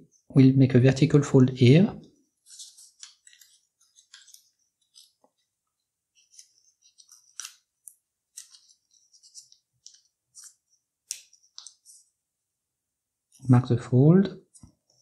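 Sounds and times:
paper rustling and crinkling: 2.4s - 5.5s, 6.1s - 12.1s.

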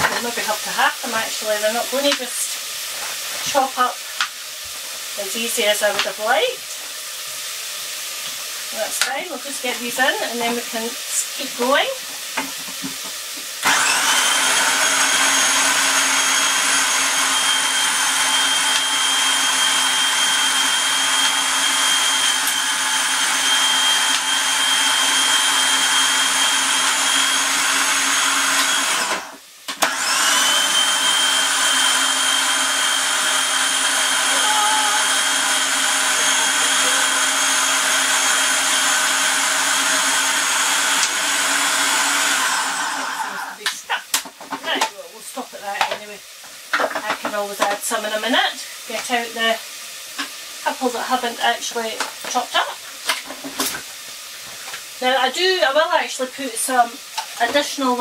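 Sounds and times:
food processor motor whirring: 11.5s - 44.3s.

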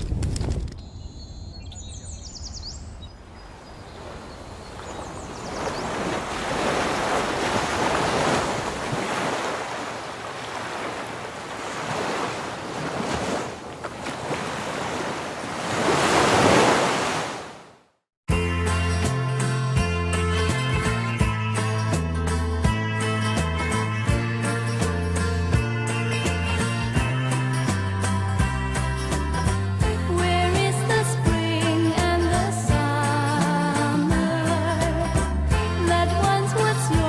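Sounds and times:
ocean waves breaking: 3.2s - 18.0s
music: 18.3s - 37.0s.

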